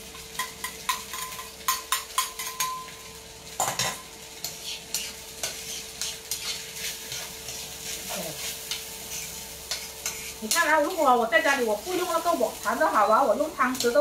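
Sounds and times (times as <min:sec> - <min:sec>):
light sizzle: 0:00.0 - 0:14.0
metal spatula scraping a wok: 0:04.4 - 0:12.6.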